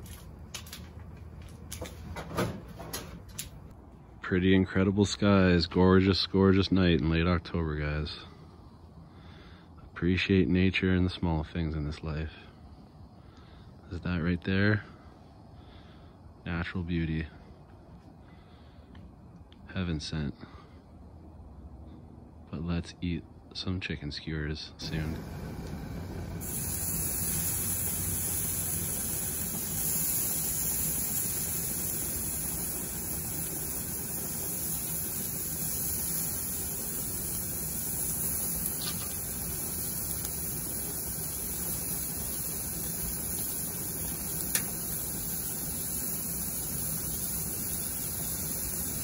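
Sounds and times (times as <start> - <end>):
faint tick: 18.9 - 19.6
chicken sizzling on a grill: 24.8 - 49.0
sharp click: 44.5 - 44.7.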